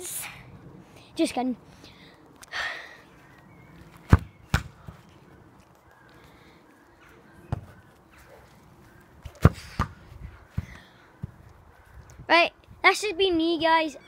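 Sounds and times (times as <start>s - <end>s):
football kicked on grass: 3.9s - 5.0s, 7.5s - 7.7s, 9.3s - 11.4s.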